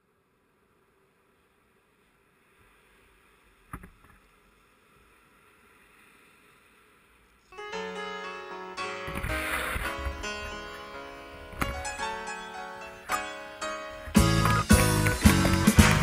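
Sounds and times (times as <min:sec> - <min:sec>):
surf breaking: 0:08.9 - 0:16.0.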